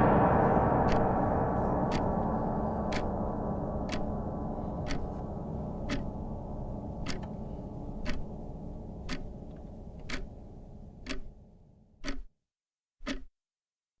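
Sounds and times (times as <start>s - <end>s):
low held drone: 0.0s - 11.6s
clock-like ticking: 0.8s - 1.2s, 1.8s - 10.4s, 11.0s - 11.4s, 12.0s - 12.3s, 13.0s - 13.3s.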